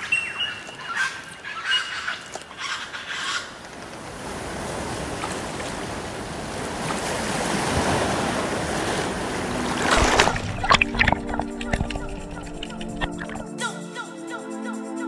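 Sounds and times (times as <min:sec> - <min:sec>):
waves washing over rocks: 0:04.2 - 0:13.5
rushing water burst: 0:07.7 - 0:13.5.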